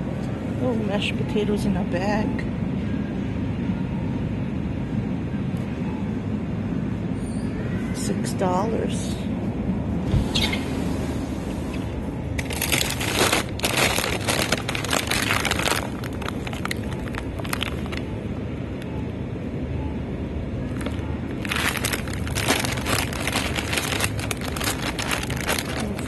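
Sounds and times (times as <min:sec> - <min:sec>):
low background hum: 0:00.0 - 0:26.0
plastic bags crinkling: 0:12.4 - 0:18.1, 0:20.7 - 0:26.0.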